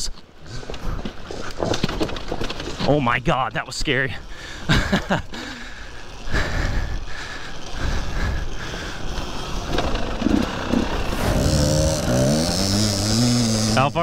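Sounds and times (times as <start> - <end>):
dirt bike riding on trail: 0.0 - 14.0
dirt bike revving uphill: 7.9 - 14.0.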